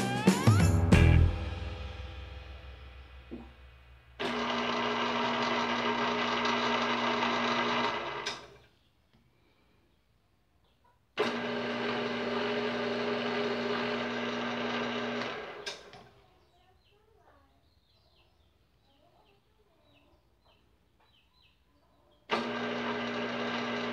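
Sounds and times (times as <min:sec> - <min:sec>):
lathe motor humming: 0:04.2 - 0:08.5, 0:11.2 - 0:15.7, 0:22.3 - 0:23.9
lathe stopping click: 0:04.2 - 0:08.6, 0:11.2 - 0:15.9, 0:22.3 - 0:23.9.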